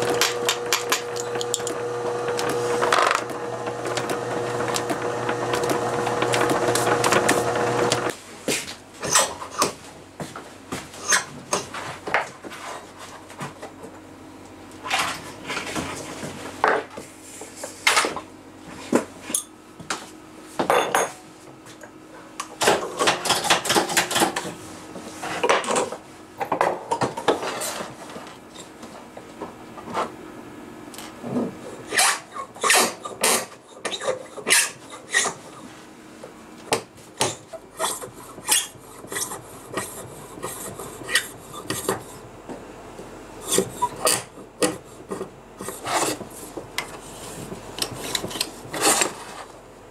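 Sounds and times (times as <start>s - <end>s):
cutting tool scraping on lathe: 0.0s - 8.1s, 31.9s - 35.6s, 37.8s - 42.2s, 43.4s - 44.3s.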